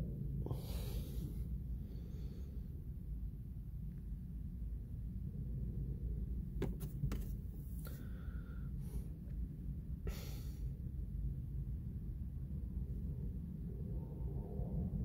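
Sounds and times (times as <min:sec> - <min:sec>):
low rumble inside car cabin: 0:00.0 - 0:15.0
phone handling rustles: 0:06.6 - 0:07.4.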